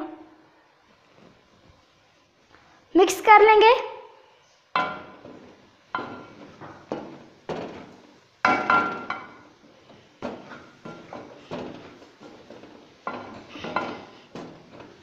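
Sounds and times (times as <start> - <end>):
wooden spatula knocking on metal pan: 4.8 - 15.0.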